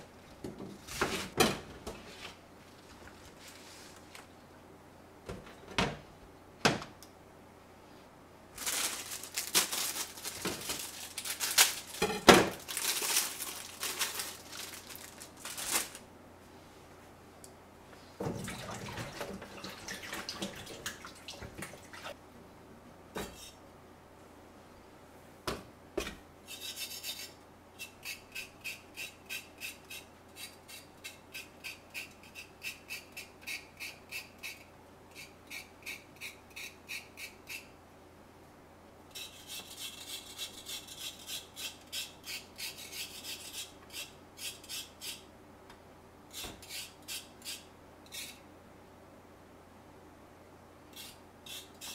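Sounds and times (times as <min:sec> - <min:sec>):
water sloshing in a basin: 0:18.2 - 0:22.2
knife cutting cabbage: 0:39.1 - 0:45.2.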